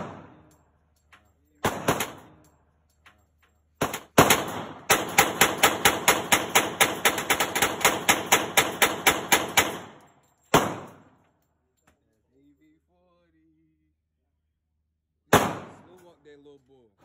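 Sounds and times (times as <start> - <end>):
gunshot echo: 0.0 - 0.5, 7.9 - 11.1, 15.3 - 16.0
pistol shots: 0.0 - 0.5, 1.6 - 2.4, 3.8 - 11.2, 15.3 - 16.0.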